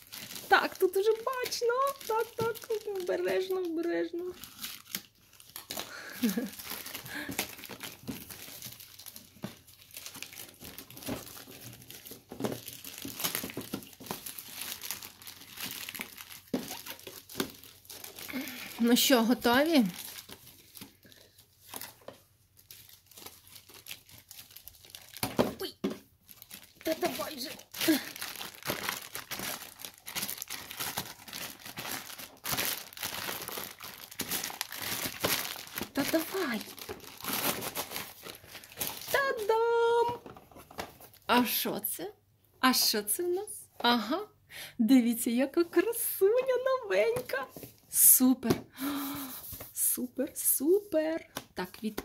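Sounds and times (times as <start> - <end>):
plastic wrapping crinkling and tearing: 0.0 - 41.3.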